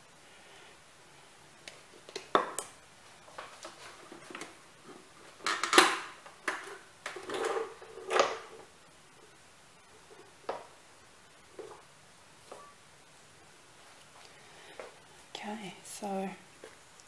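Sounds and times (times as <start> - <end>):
kitchen items knocking and clattering: 5.4 - 8.7.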